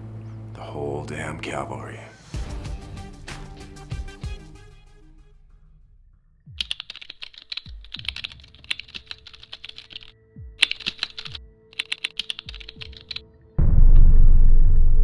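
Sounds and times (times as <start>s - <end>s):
keyboard key clicks: 6.6s - 13.2s
low thump: 13.6s - 15.0s.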